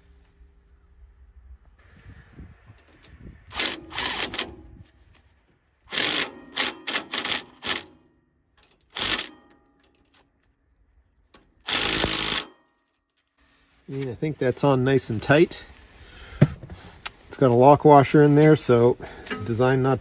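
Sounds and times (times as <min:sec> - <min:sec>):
impact driver hammering bolt: 0:05.9 - 0:08.0, 0:08.9 - 0:09.8, 0:11.6 - 0:12.6.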